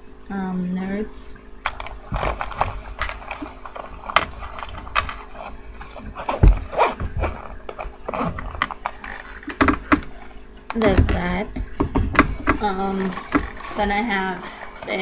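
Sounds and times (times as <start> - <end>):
items rustling in a bag: 1.7 - 11.3.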